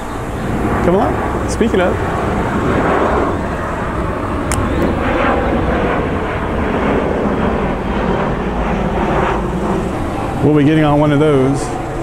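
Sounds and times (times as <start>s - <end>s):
jet engines running: 0.0s - 12.0s
sharp click: 4.5s - 4.9s.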